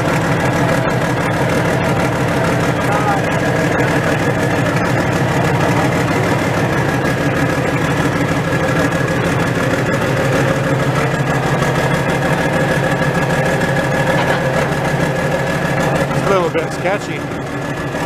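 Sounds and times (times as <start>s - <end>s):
tractor engine idling: 0.0s - 18.0s.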